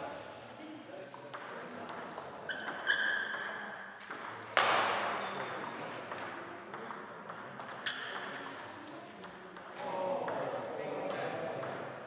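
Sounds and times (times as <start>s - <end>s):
ping-pong ball clicking: 1.3s - 4.7s, 5.4s - 11.8s
high squeak: 2.5s - 3.4s
loud sharp ball hit: 4.6s - 5.1s.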